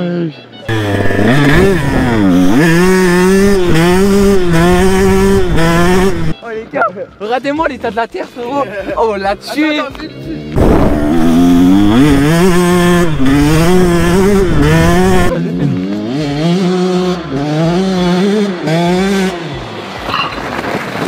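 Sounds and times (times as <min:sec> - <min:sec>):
dirt bike engine revving: 0:00.7 - 0:06.4, 0:10.5 - 0:20.1.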